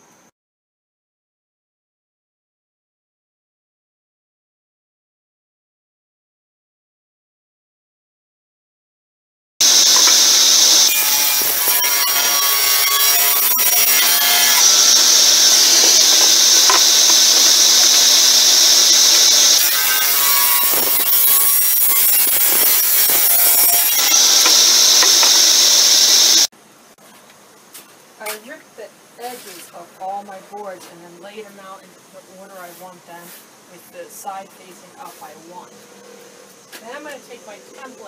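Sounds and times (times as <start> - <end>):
table saw cutting wood: 9.6 - 26.5.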